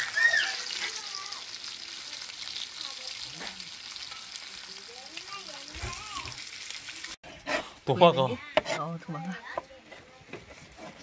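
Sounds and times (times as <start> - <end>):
steak sizzling in butter: 0.0 - 8.3.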